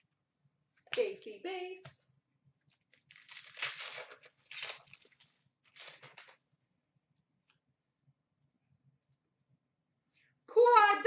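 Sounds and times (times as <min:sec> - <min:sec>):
foil wrapper tearing and crinkling: 0:02.7 - 0:06.4.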